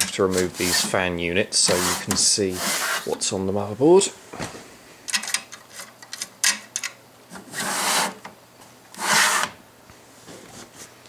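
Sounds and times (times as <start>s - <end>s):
metal scraping slides: 0.0s - 1.0s, 1.6s - 3.2s, 9.0s - 9.6s.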